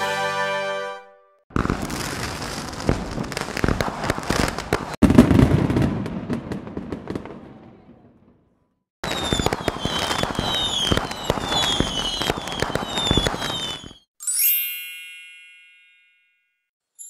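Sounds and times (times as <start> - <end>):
crackling and popping with whistles: 9.0 - 14.1
bright chime ringing: 14.2 - 17.0.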